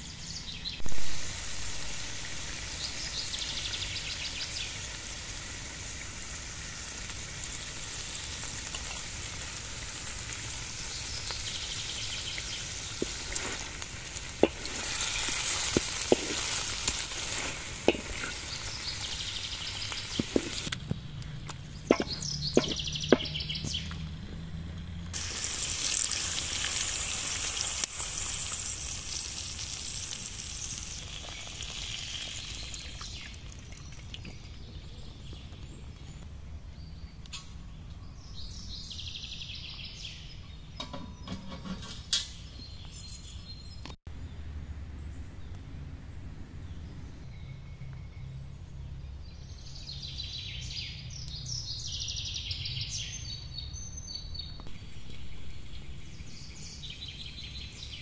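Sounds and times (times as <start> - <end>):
meat sizzling in oil: 0.8 - 20.7, 25.2 - 34.1
wooden spatula knocking on pan: 17.9 - 18.3, 21.9 - 23.7.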